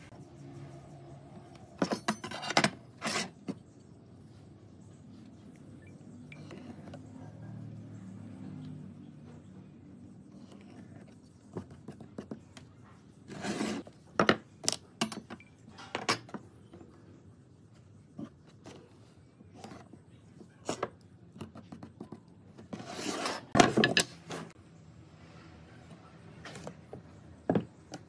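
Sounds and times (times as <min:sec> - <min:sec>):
wood scraping across bench: 0:13.3 - 0:14.0, 0:22.6 - 0:24.6.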